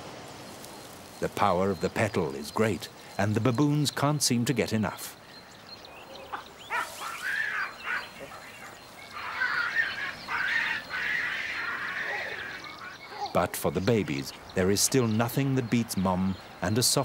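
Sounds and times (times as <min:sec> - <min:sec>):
high-pitched animal calls: 0:05.9 - 0:13.4.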